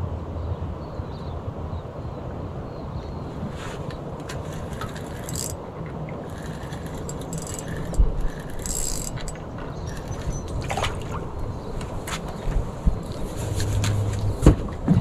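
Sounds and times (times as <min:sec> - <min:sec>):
fishing reel cranking: 0:04.4 - 0:05.6, 0:06.2 - 0:10.5.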